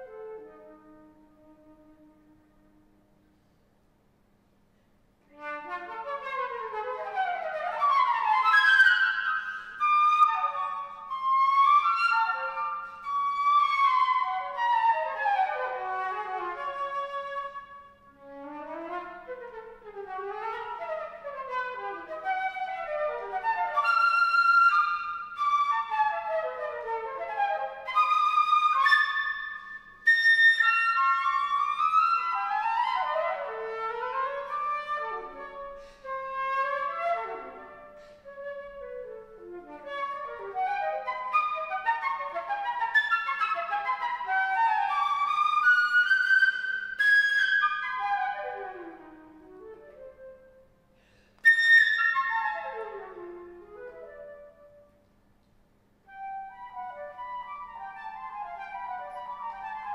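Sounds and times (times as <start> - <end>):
flute playing fast runs: 20.4 - 50.4.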